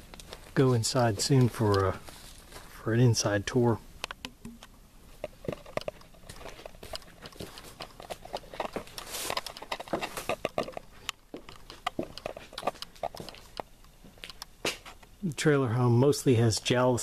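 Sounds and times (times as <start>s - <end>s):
footsteps on gritty concrete: 0.0s - 2.8s, 5.4s - 15.0s.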